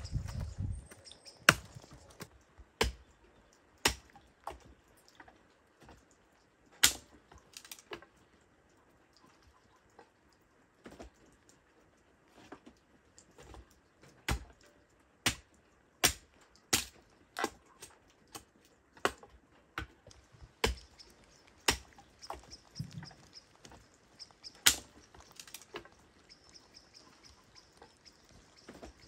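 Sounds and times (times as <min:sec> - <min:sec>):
hatchet chopping wood: 0:01.4 - 0:01.9, 0:02.8 - 0:03.0, 0:03.8 - 0:04.6, 0:06.8 - 0:07.8, 0:14.2 - 0:14.6, 0:15.2 - 0:17.6, 0:18.4 - 0:19.2, 0:20.6 - 0:20.9, 0:21.6 - 0:22.4, 0:24.6 - 0:25.6.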